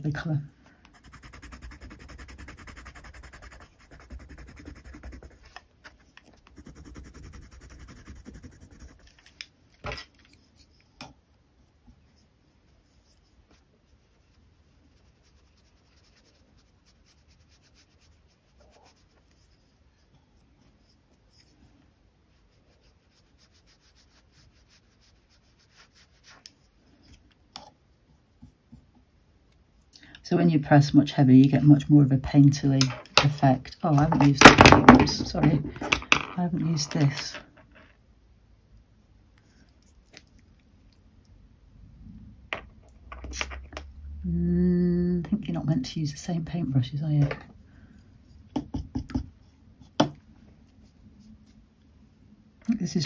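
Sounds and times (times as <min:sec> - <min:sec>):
pencil scratching on paper: 0:00.9 - 0:09.2, 0:11.6 - 0:27.2.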